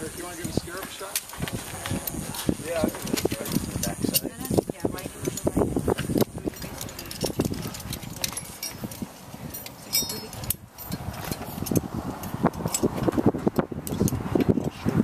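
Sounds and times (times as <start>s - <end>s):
metal carabiners clinking: 0.0s - 13.2s.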